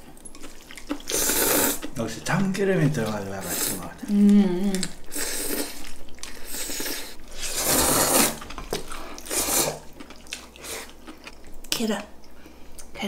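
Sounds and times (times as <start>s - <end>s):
noodles being slurped: 0.5s - 2.0s, 3.0s - 4.0s, 5.0s - 11.3s.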